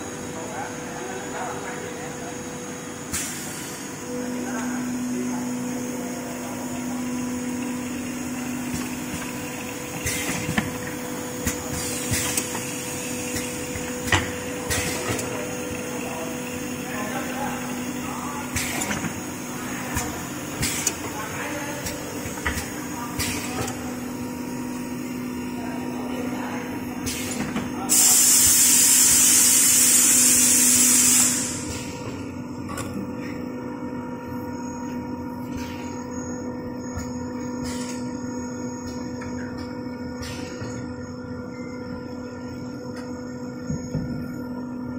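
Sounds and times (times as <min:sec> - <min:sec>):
machine line humming: 0:00.0 - 0:44.9
machinery hissing: 0:27.1 - 0:31.7.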